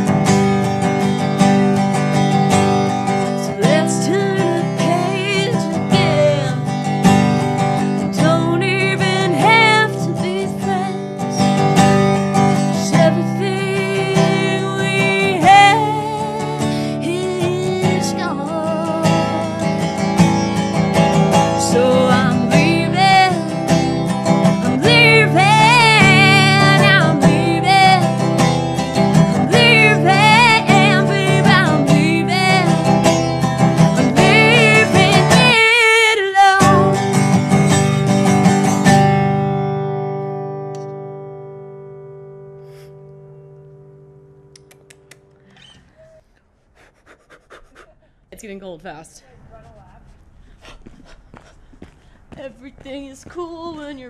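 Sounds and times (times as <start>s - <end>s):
strummed resonator guitar: 0.0s - 45.5s
woman singing with vibrato: 3.3s - 6.8s, 8.0s - 11.6s, 12.6s - 20.0s, 21.2s - 28.4s, 29.0s - 37.2s, 52.4s - 54.0s.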